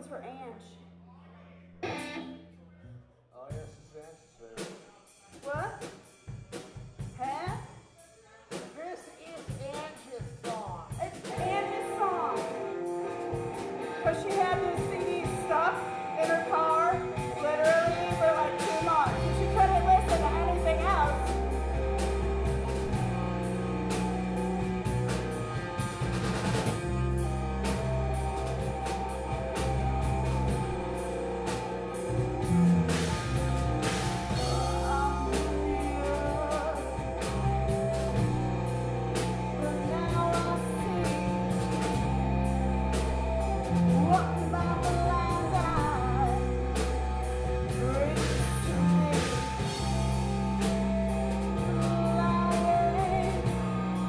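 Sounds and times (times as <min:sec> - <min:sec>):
drum kit: 0:01.8 - 0:02.4, 0:03.5 - 0:54.0
electric guitars: 0:01.8 - 0:02.5, 0:11.0 - 0:54.0
woman singing: 0:10.9 - 0:12.7, 0:13.8 - 0:21.4, 0:34.4 - 0:37.2, 0:39.5 - 0:42.1, 0:43.9 - 0:46.6, 0:47.6 - 0:49.9, 0:51.6 - 0:53.7.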